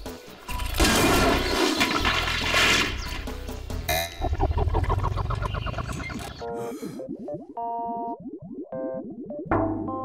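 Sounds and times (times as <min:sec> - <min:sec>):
rising bubble blips: 0:03.9 - 0:10.0.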